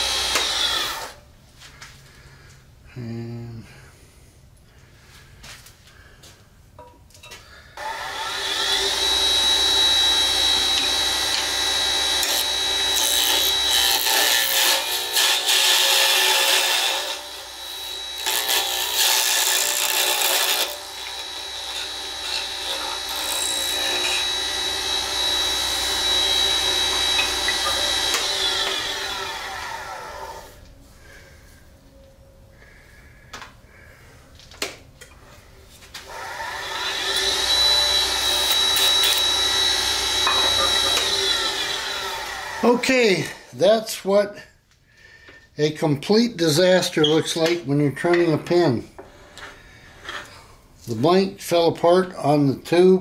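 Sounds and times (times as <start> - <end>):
wood lathe whining: 0.0 - 1.2, 7.8 - 30.7, 36.1 - 43.5.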